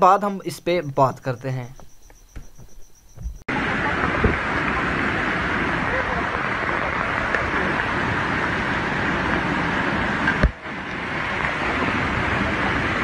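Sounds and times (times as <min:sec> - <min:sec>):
thump: 0:02.3 - 0:03.4
landslide rushing: 0:03.5 - 0:13.0.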